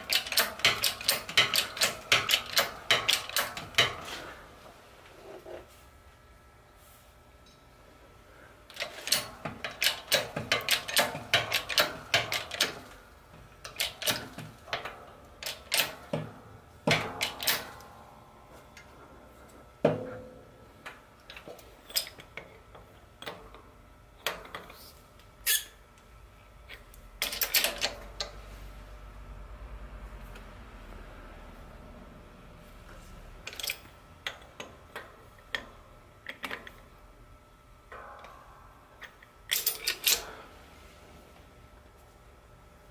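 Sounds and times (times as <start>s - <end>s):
hydraulic press metallic clicks: 0.0s - 4.2s, 8.7s - 13.0s, 13.6s - 17.9s, 39.0s - 40.4s
loud ringing metal clank: 37.9s - 39.0s.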